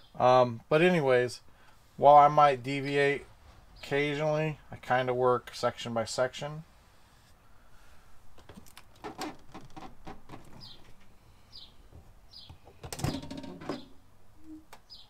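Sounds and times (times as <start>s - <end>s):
bird chirping: 10.5s - 15.0s.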